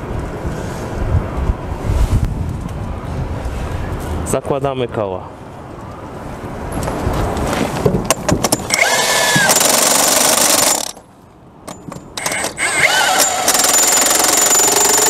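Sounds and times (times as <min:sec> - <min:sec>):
impact wrench hammering: 0:08.1 - 0:11.0, 0:11.7 - 0:15.0
impact wrench motor whine: 0:08.6 - 0:11.0, 0:11.7 - 0:15.0.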